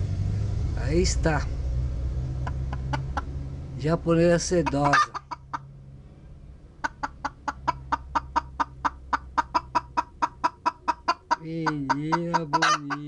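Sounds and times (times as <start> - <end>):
hen clucking: 2.4 - 3.4, 4.3 - 5.7, 6.8 - 13.0.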